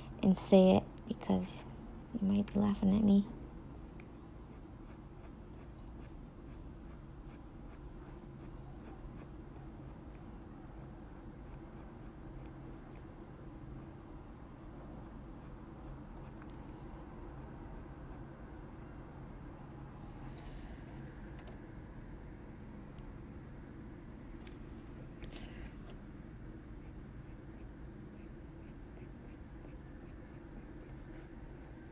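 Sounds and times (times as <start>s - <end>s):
coloured pencil scratching on card: 3.4s - 13.2s.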